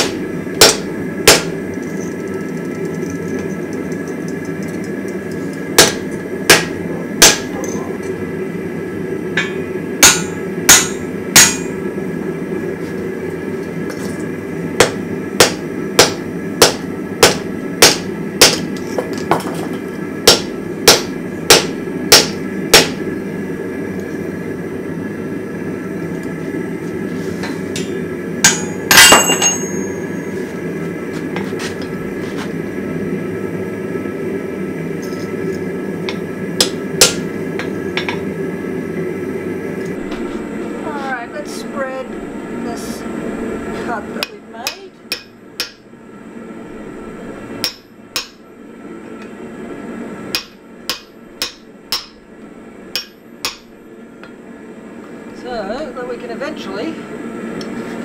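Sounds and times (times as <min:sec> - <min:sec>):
hammer striking steel on anvil: 0:00.0 - 0:02.0, 0:05.8 - 0:07.8, 0:09.4 - 0:11.8, 0:14.8 - 0:18.8, 0:20.2 - 0:23.0, 0:27.7 - 0:30.4, 0:36.1 - 0:38.2, 0:44.2 - 0:45.8, 0:47.6 - 0:48.4, 0:50.3 - 0:52.2, 0:52.9 - 0:53.7
steady rushing noise: 0:40.0 - 0:44.6.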